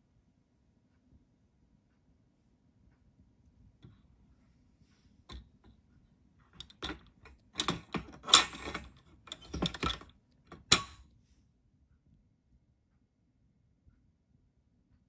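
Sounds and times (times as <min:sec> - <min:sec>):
pet carrier wire door rattling: 0:07.6 - 0:11.0.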